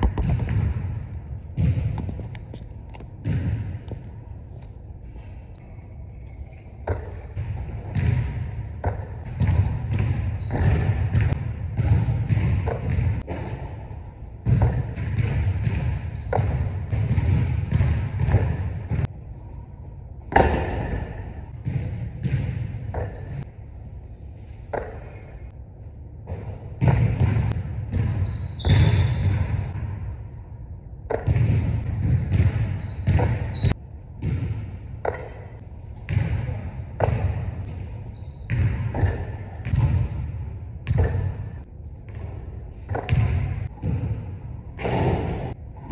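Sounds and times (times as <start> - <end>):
ball hitting rim: 0.0 - 4.7, 6.8 - 19.2, 20.3 - 23.5, 24.7 - 25.5, 26.2 - 30.2, 31.0 - 45.6
basketball bouncing on wood floor: 0.0 - 4.7, 6.8 - 13.7, 14.4 - 19.1, 20.3 - 23.4, 26.3 - 30.1, 31.1 - 37.9, 38.5 - 44.2.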